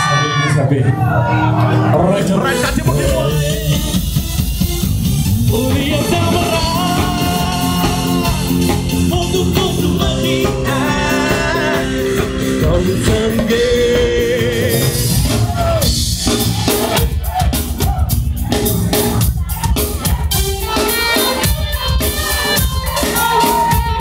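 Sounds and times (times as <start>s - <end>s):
singing over a dense beat: 1.6s - 4.5s, 5.3s - 24.0s.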